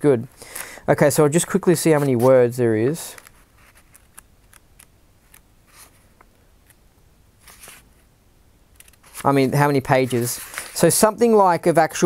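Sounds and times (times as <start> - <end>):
book pages rustling: 1.4 - 2.4, 3.1 - 6.8, 7.4 - 8.1, 8.7 - 10.9
book page turning: 1.9 - 2.4, 3.1 - 6.8, 7.4 - 8.1, 8.7 - 10.8.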